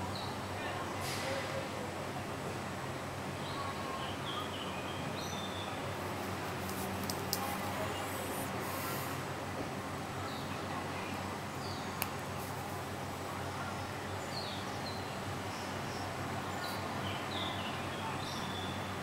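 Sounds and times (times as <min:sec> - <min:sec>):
steady hiss: 0:05.9 - 0:09.5.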